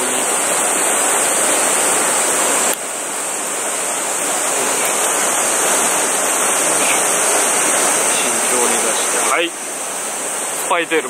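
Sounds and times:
stream water rushing: 0.0 - 11.0.

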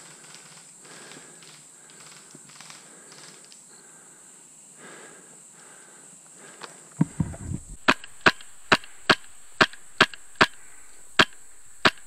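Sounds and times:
low knocks: 7.0 - 8.0
airsoft rifle shots: 7.0 - 12.0.

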